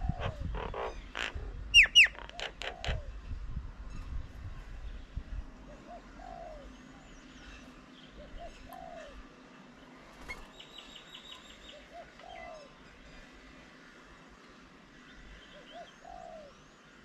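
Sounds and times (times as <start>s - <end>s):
dove cooing: 0.0s - 0.9s, 1.8s - 3.1s, 5.7s - 6.8s, 8.2s - 9.2s, 11.7s - 12.7s, 15.6s - 16.6s.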